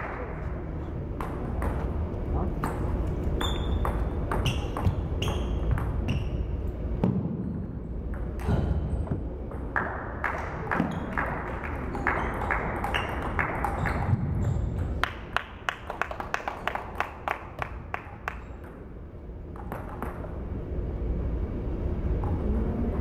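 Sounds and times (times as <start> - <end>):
low hum: 18.5 - 23.0.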